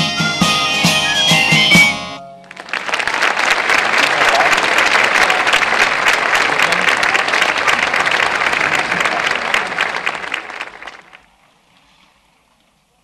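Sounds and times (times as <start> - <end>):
audience applauding: 2.4 - 11.4.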